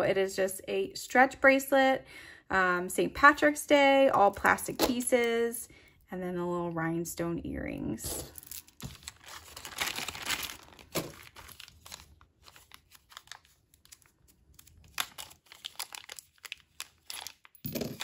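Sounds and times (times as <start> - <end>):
plastic bag crinkling: 8.2 - 18.0.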